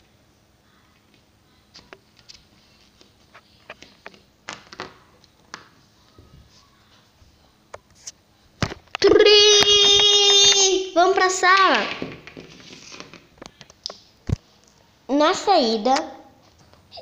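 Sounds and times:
plastic figurines tapping on floor: 0:11.6 - 0:13.2.

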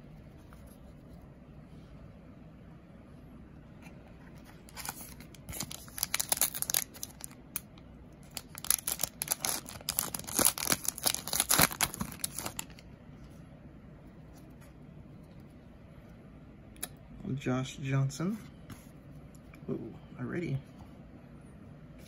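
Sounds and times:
wrapper tearing and crinkling: 0:04.7 - 0:07.7, 0:08.3 - 0:12.8.

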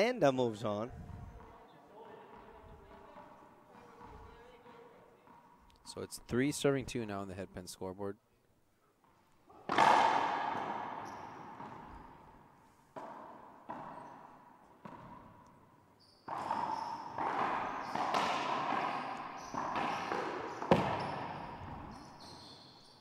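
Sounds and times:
racquetball hits ringing: 0:09.6 - 0:23.0.

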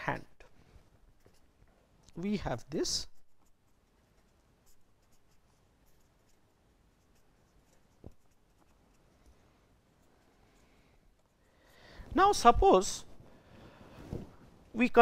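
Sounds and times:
pen scratching on paper: 0:03.2 - 0:10.6.

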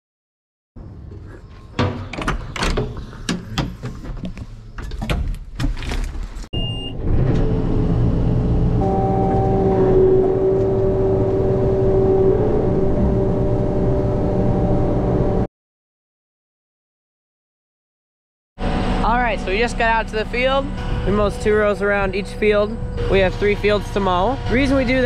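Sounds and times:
knocks and clatters: 0:01.1 - 0:06.5
high beep: 0:06.6 - 0:07.0, 0:08.8 - 0:10.4
machine whine: 0:07.0 - 0:15.5, 0:18.6 - 0:25.0
farm machine engine running: 0:18.6 - 0:25.0.

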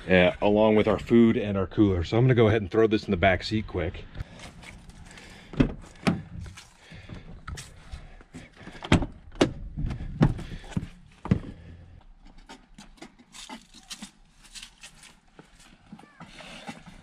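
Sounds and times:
knocks and thumps: 0:08.7 - 0:11.6.

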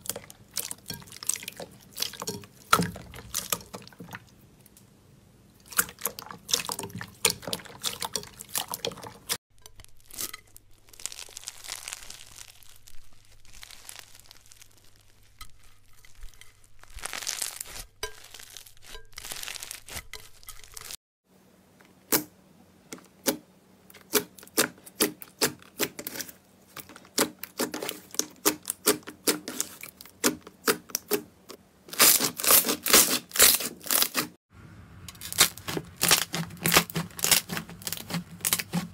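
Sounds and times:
beaded slime crunching: 0:05.6 - 0:21.0, 0:31.9 - 0:34.3, 0:35.1 - 0:38.9
slime crackling and popping: 0:05.7 - 0:21.0, 0:31.9 - 0:34.3, 0:35.1 - 0:38.9.

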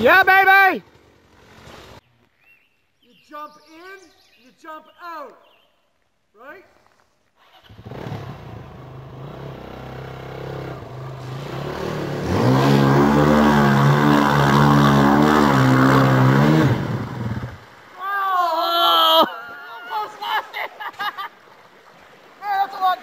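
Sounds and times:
dirt bike engine revving: 0:00.0 - 0:02.0, 0:07.5 - 0:17.7
bike ploughing through water: 0:07.4 - 0:23.0.

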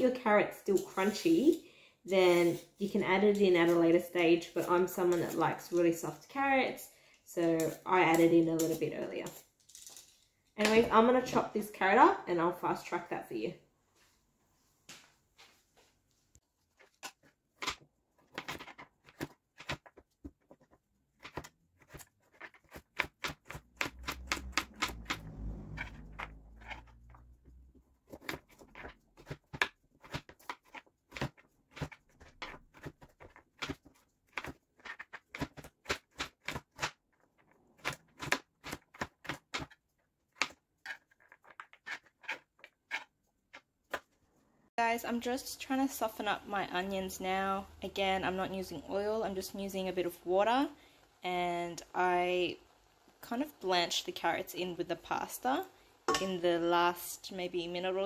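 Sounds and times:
low rumbling noise: 0:24.2 - 0:27.5.

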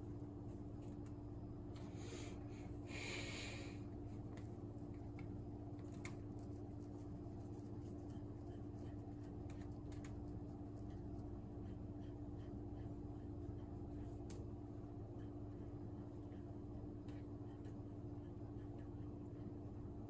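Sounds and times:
breathy exhale: 0:01.9 - 0:03.9.

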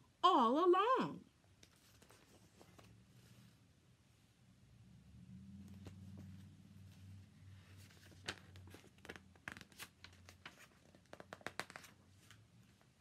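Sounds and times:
faint low hum: 0:00.0 - 0:11.2
book pages turning: 0:01.6 - 0:03.6, 0:05.6 - 0:13.0.

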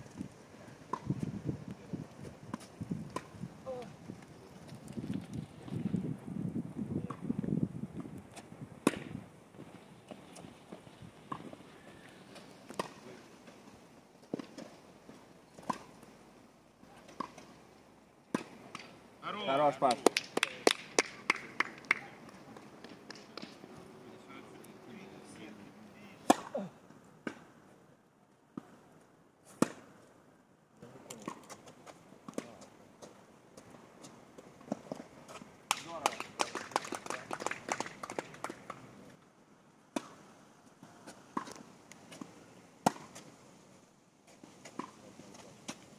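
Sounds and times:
tennis ball hit by rackets: 0:00.9 - 0:01.2, 0:02.5 - 0:03.4, 0:08.8 - 0:09.2, 0:12.7 - 0:13.0, 0:15.6 - 0:16.0, 0:18.3 - 0:19.0, 0:26.2 - 0:27.6, 0:29.5 - 0:29.9, 0:39.9 - 0:40.2, 0:41.0 - 0:43.2, 0:44.6 - 0:45.0.

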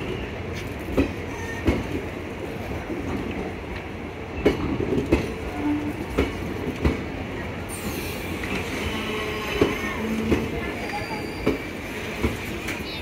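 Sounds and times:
train rumble: 0:00.0 - 0:13.0
brief wheel squeal: 0:10.8 - 0:11.7.

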